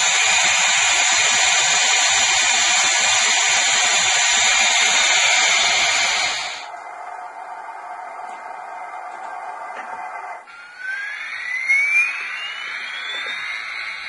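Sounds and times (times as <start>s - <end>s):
loud steam hiss: 0.0s - 6.7s.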